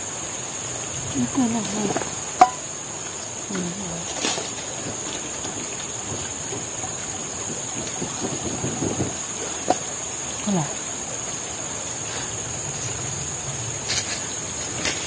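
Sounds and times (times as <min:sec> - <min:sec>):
high-pitched insect drone: 0:00.0 - 0:15.0
river water rushing: 0:00.0 - 0:15.0.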